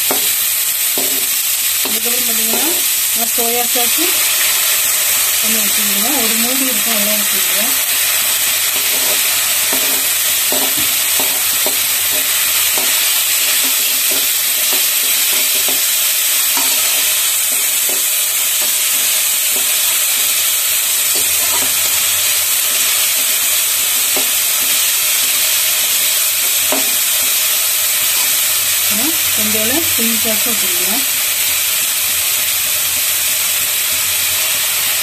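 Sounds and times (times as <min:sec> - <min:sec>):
vegetables sizzling in hot oil: 0:00.0 - 0:35.0
spatula scraping metal pan: 0:21.1 - 0:22.1.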